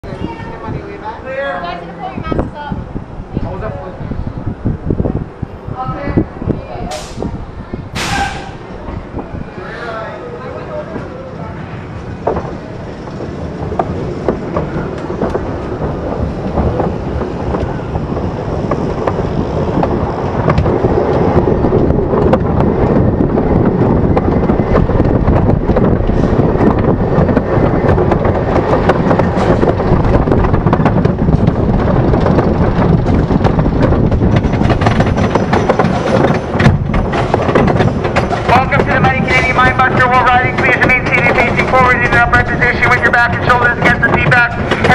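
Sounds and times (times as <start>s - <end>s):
roller coaster wheels rumbling on track: 0.0s - 44.9s.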